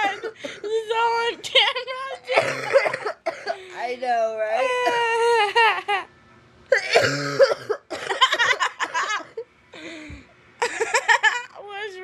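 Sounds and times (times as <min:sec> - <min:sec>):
people coughing: 0:02.3 - 0:03.6, 0:06.7 - 0:09.3.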